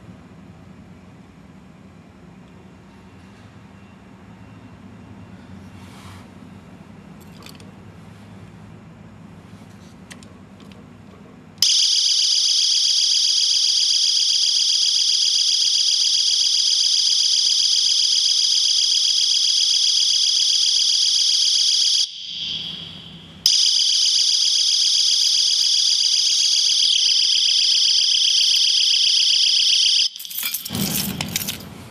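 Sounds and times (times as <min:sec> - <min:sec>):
high-pitched electronic alarm: 0:11.6 - 0:30.3.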